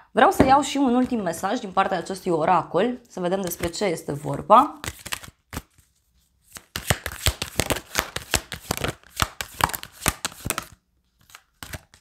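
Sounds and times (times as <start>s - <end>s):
cards shuffled by hand: 4.8s - 12.0s.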